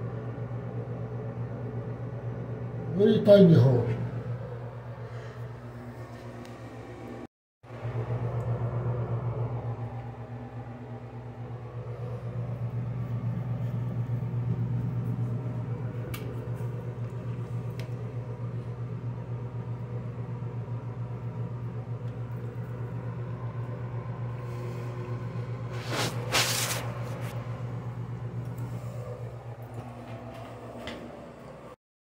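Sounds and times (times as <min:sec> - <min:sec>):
steady low hum: 0:00.0 - 0:31.8
short rush of noise: 0:25.7 - 0:27.4.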